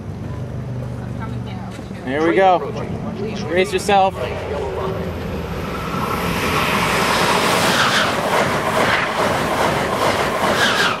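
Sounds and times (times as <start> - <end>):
high-speed train passing: 0.0 - 11.0.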